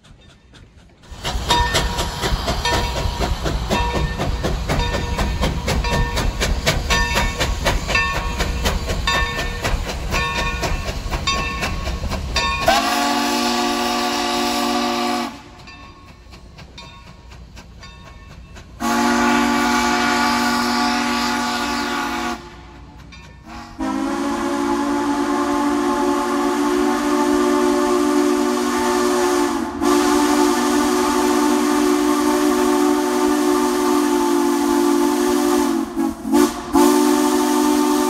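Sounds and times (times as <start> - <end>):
steam train clattering by: 0.0 - 38.0
steam whistle blasts: 12.6 - 15.6, 18.8 - 22.8, 23.5 - 38.0.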